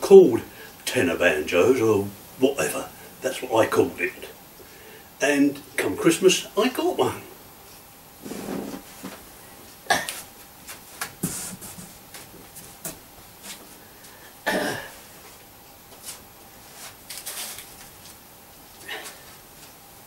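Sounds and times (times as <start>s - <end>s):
person coughing: 14.4s - 15.0s
plastic bag crinkling: 17.0s - 18.2s.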